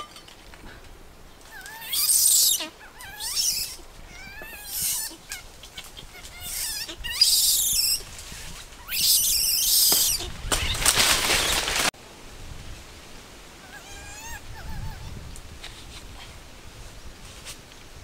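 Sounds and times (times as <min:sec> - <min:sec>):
birds chirping: 0:00.0 - 0:11.8
leaves rustling and branches shaking: 0:00.0 - 0:18.0.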